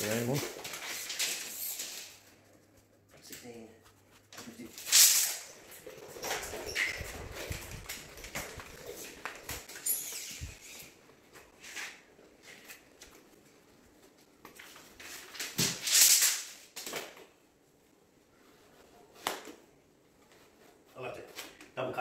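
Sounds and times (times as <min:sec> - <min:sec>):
scuffing footsteps: 0:05.8 - 0:09.8.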